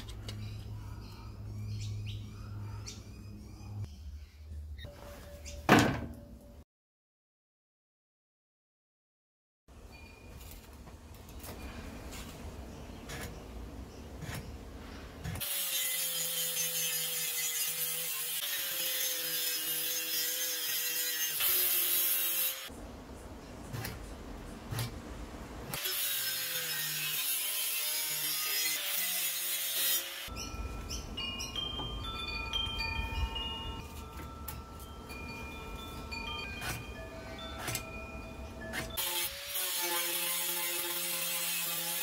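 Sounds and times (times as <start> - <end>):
angle grinder cutting steel: 15.4 - 22.7, 25.7 - 30.3, 38.8 - 42.0.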